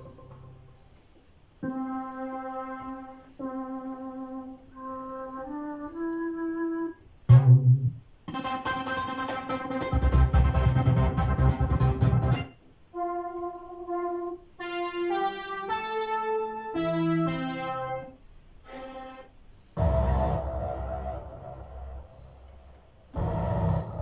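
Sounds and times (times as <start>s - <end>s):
synthesizer keyboards playing: 0.0s - 24.0s
deep synth bass: 19.8s - 22.2s, 23.2s - 24.0s.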